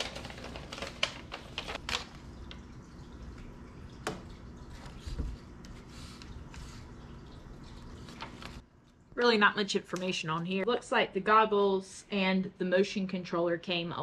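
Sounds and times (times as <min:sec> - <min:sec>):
paper rustling and crinkling: 0:00.0 - 0:02.6, 0:07.9 - 0:08.6.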